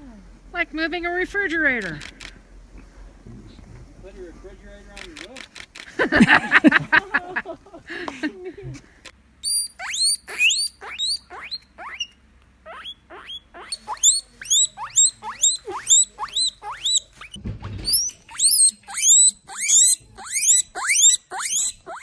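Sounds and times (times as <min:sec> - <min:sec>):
guinea pig squealing: 0:09.4 - 0:22.0.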